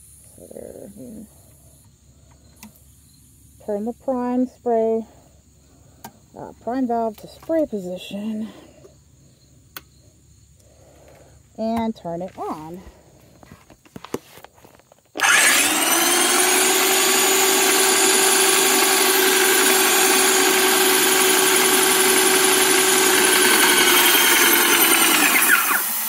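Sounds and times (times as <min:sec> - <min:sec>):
electric paint sprayer pump humming: 0:15.2 - 0:26.0.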